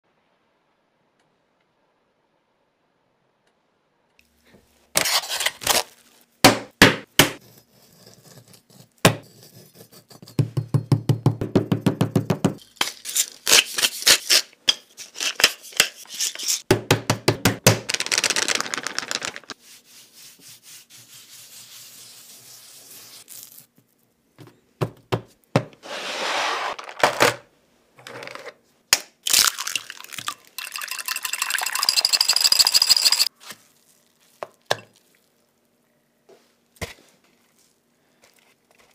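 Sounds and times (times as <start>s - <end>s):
flour sprinkling hiss: 17.9s - 23.8s
eggs beaten in glass bowl: 30.2s - 33.3s.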